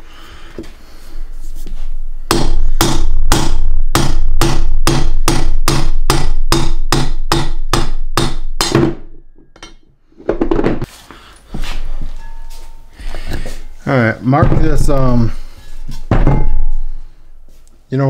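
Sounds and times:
hammer striking steel punch: 2.3 - 9.8, 16.1 - 17.0.

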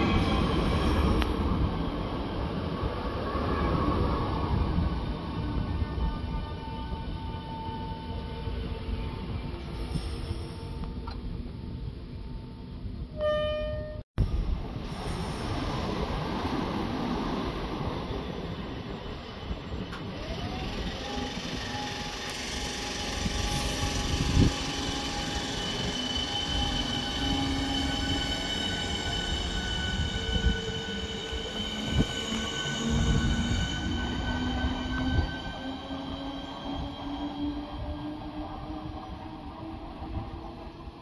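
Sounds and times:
train rumble: 0.0 - 41.0
electric train motors whining: 20.0 - 37.1.

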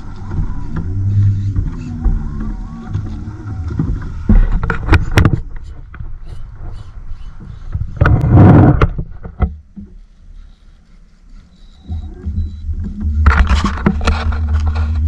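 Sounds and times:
wind on microphone: 0.0 - 9.5
water slapping boat hull: 0.0 - 15.0.

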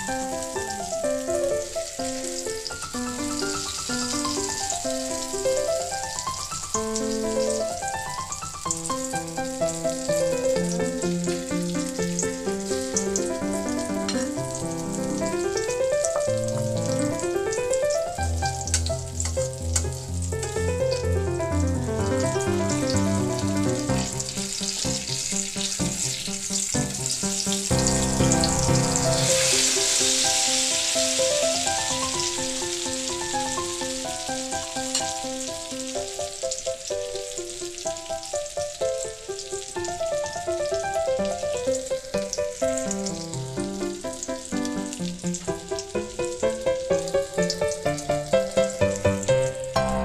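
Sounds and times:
omelette sizzling in oil: 0.0 - 49.8
background music: 20.2 - 24.8.

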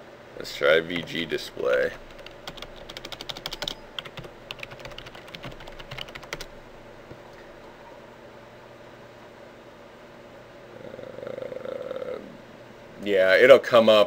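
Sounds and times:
faint steady hum: 0.0 - 14.0
keyboard typing: 0.9 - 6.6.

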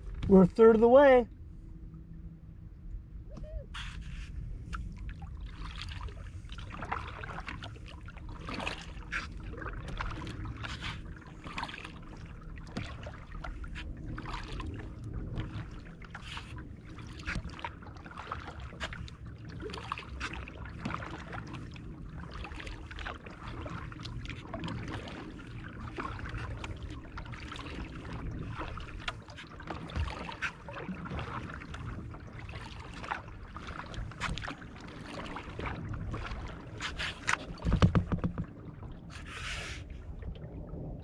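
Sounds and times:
rumble of water and wind: 0.0 - 41.0
paddle splashing in water: 3.7 - 40.6.

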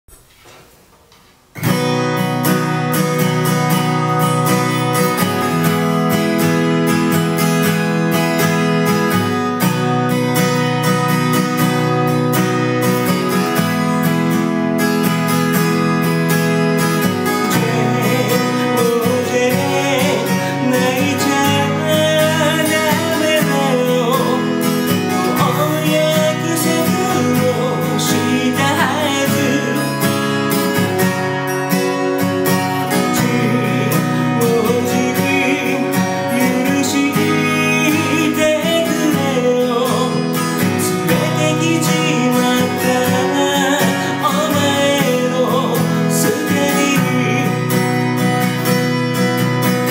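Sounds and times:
acoustic guitar strumming: 0.1 - 49.9
man singing: 16.8 - 48.9.

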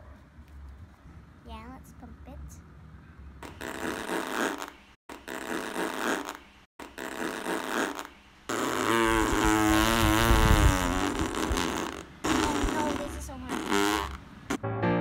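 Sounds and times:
comic fart noises: 3.4 - 14.6.

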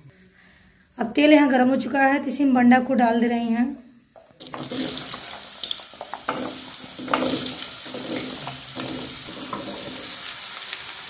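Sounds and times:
food sizzling in hot oil: 4.4 - 11.0
steel plate knocking on pan: 6.1 - 10.1.

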